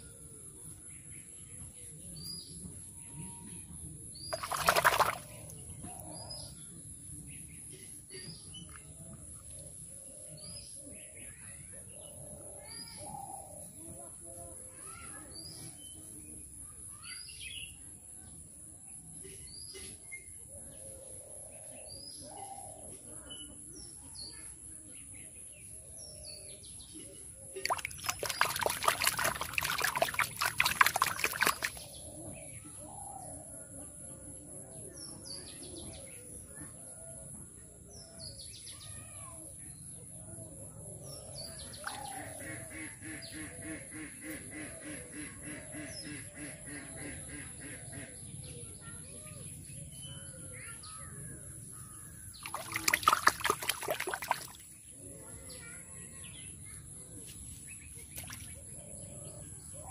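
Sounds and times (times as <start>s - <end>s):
birds chirping: 4.2s - 6.1s, 27.6s - 32.4s, 41.3s - 42.8s, 51.7s - 55.7s.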